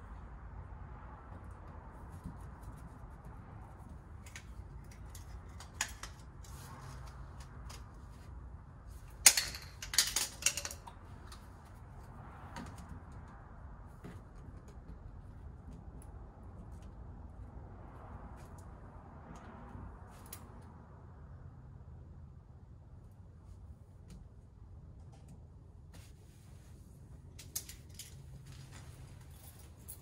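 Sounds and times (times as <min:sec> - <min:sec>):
low background noise: 0:00.0 - 0:30.0
plastic pipe fittings clicking: 0:09.2 - 0:11.4.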